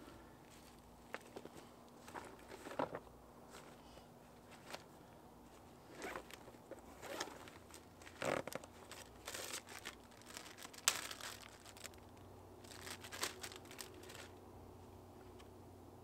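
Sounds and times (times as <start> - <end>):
plastic packaging crinkling: 6.0 - 14.4.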